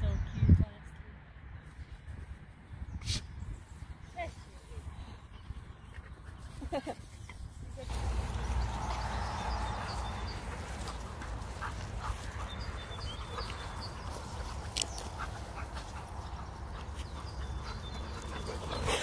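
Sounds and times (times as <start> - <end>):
rustling on grass: 6.2 - 19.0
dogs breathing: 7.9 - 19.0.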